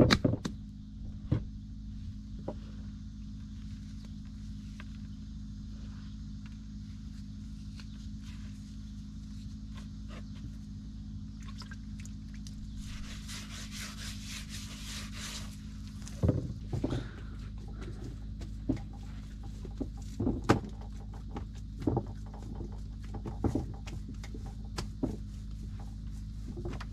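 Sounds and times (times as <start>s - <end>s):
steady low hum: 0.0s - 26.9s
hands kneading sticky dough: 12.2s - 26.9s.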